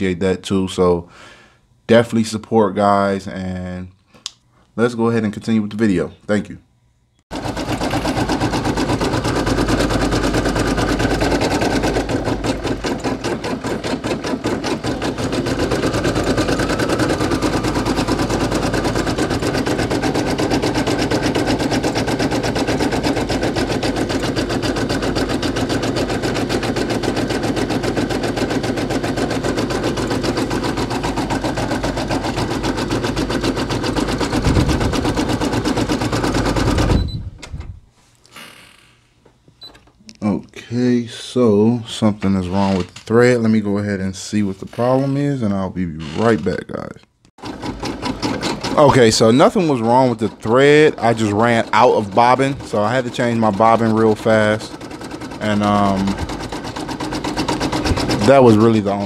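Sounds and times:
embroidery machine needle clattering: 7.3 - 37.0, 47.4 - 59.0.

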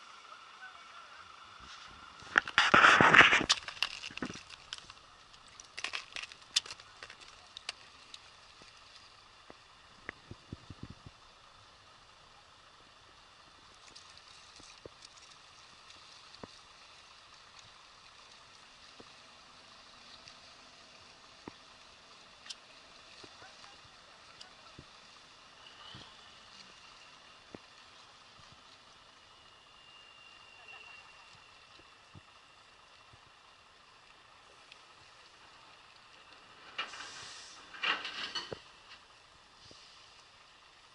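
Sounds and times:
ice clicks and crackles: 1.6 - 11.1, 13.6 - 19.2, 20.0 - 28.9.

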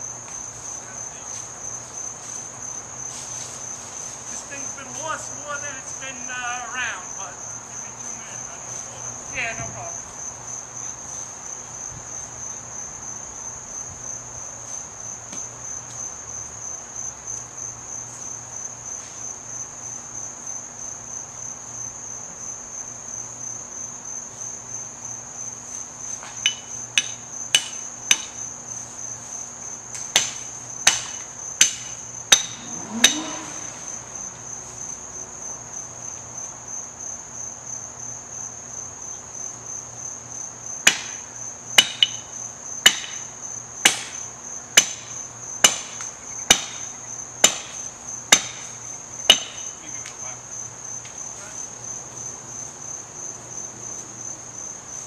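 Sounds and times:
crickets chirring: 0.0 - 55.0
hammer blows with short ring: 31.6 - 33.7.

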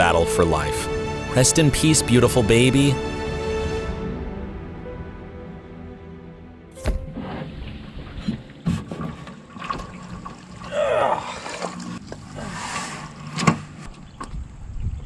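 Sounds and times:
splashing: 6.8 - 14.0
man's falling cry: 10.7 - 11.4.

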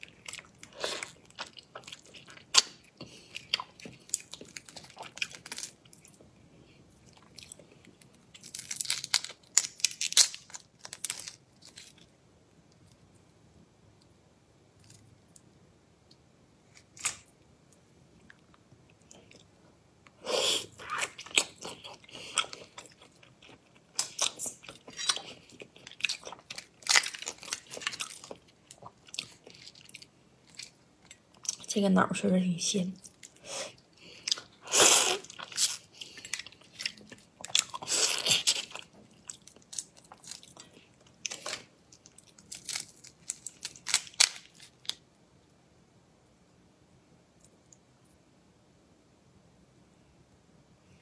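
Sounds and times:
shrimp shells crunching: 8.3 - 12.0, 21.1 - 30.7, 35.1 - 45.0.

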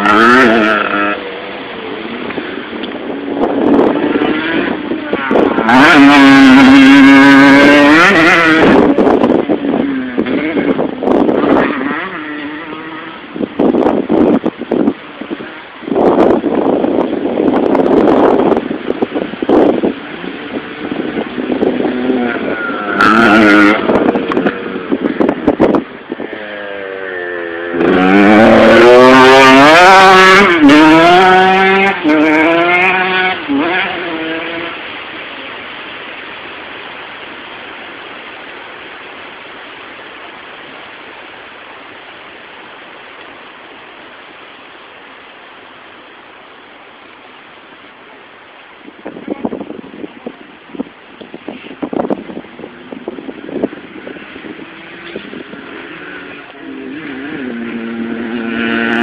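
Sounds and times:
motocross bike engine revving: 0.0 - 35.4, 51.5 - 59.0
steady low hiss: 0.0 - 59.0.

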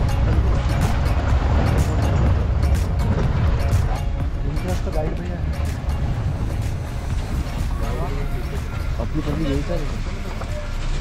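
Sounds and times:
background music with steady beat: 0.0 - 11.0
jeep driving rumble: 0.0 - 11.0.

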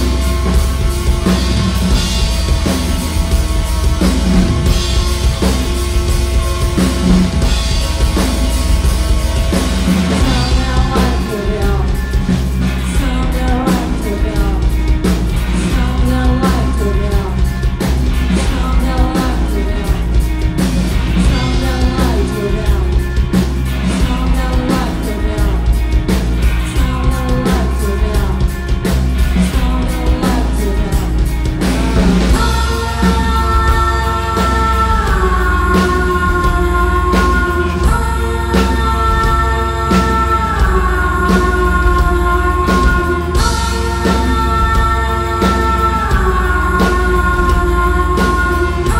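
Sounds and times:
distorted electric guitar: 0.0 - 48.9
drum kit: 0.0 - 48.9
person singing: 9.9 - 20.3, 21.1 - 48.9.

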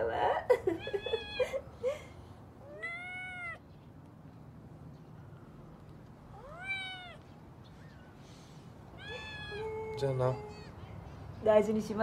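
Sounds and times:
kitten meowing: 2.6 - 3.6, 6.3 - 7.3, 9.0 - 10.8.

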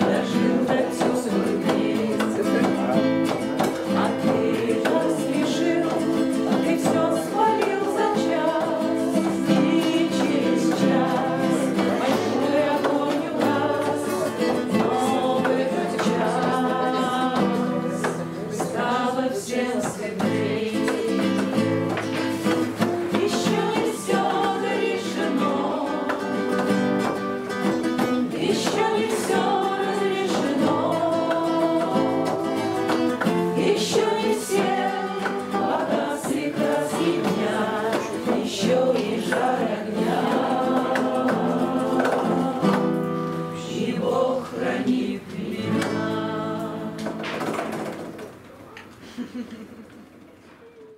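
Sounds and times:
voices singing together: 0.0 - 48.1
acoustic guitar: 0.0 - 50.9.

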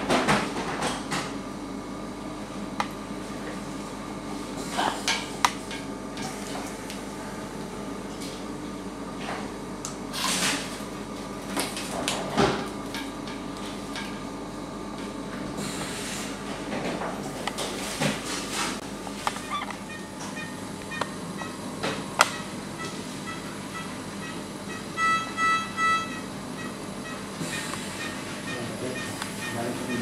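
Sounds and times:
steady machine hum: 0.0 - 30.0.

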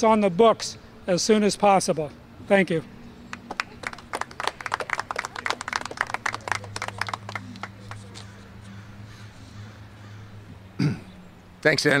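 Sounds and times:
small crowd applauding: 3.3 - 8.3.

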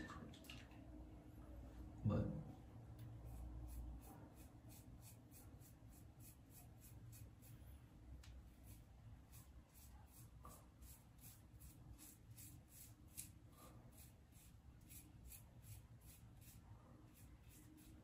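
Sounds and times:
razor scraping beard stubble: 3.3 - 7.5, 8.6 - 18.0.

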